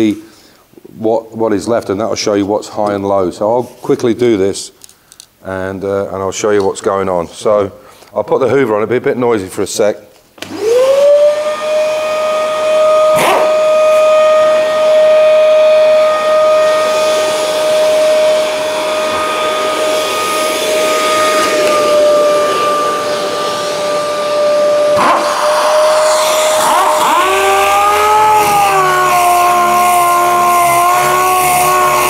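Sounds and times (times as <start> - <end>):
shop vacuum whining: 10.4 - 32.0.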